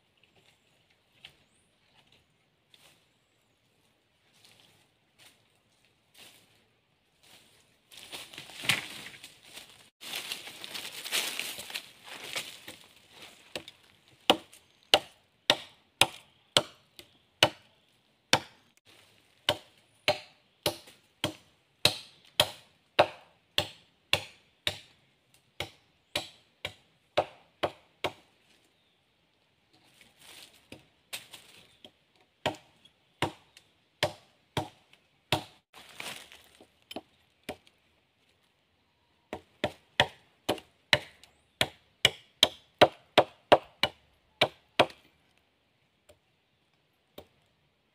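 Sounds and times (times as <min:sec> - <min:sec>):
machete chopping log: 0:14.3 - 0:17.7, 0:18.3 - 0:18.6, 0:19.5 - 0:24.9, 0:25.6 - 0:28.2, 0:32.4 - 0:36.2, 0:39.3 - 0:45.0.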